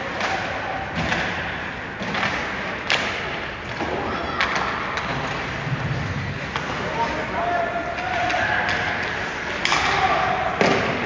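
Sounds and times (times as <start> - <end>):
arena background noise: 0.0 - 11.0
hockey stick and puck knocks: 10.6 - 11.0.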